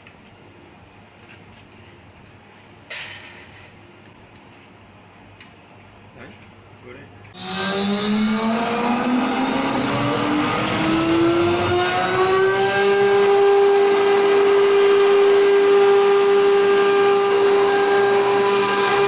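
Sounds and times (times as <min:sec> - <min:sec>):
spindle motors whining: 0:07.4 - 0:19.0.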